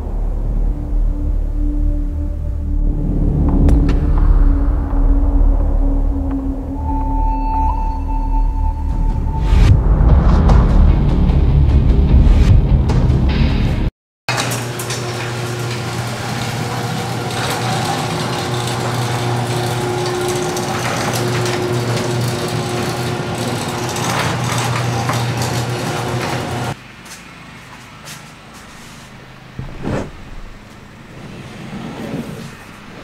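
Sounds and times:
metal door and rollers rattling: 0:14.3 - 0:26.8
garage door motor hum: 0:14.3 - 0:33.0.

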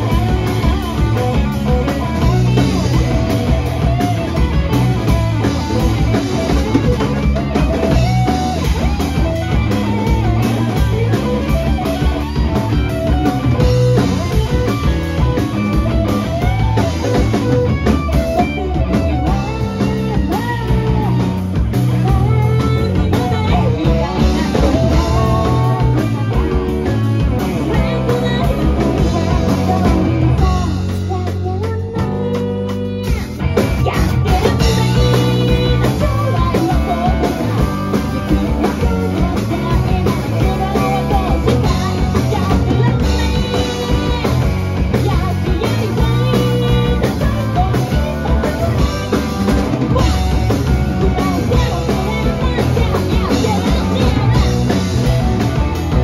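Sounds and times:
woman singing: 0:00.0 - 0:04.0, 0:18.4 - 0:56.0
live rock band playing: 0:00.0 - 0:56.0.

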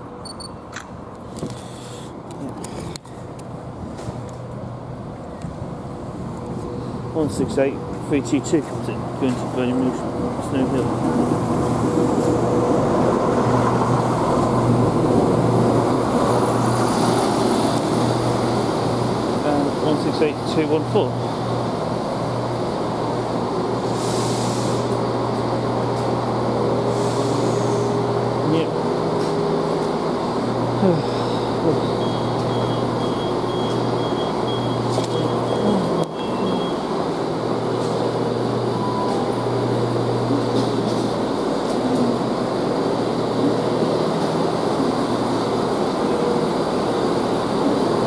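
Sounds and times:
diesel engine hum: 0:00.8 - 0:48.0
air hiss: 0:23.9 - 0:24.9.

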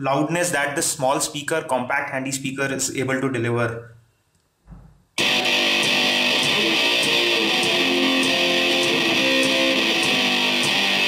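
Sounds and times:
guitar music from speaker: 0:05.2 - 0:11.0.

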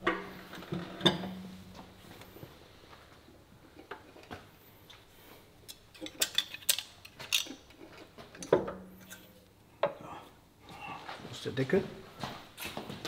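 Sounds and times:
metal clicks and clinks: 0:05.7 - 0:09.4
sharp clinks and knocks: 0:05.7 - 0:09.4.

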